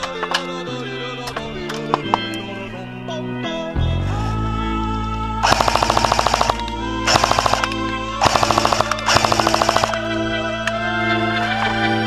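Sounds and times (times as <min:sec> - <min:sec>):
background music: 0:00.0 - 0:12.0
airsoft gun firing bursts: 0:05.4 - 0:10.1.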